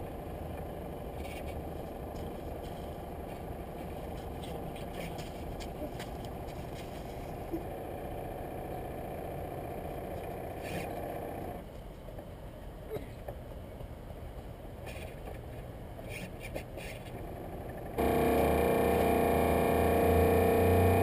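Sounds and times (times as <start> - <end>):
model boat motor running: 17.6 - 21.0.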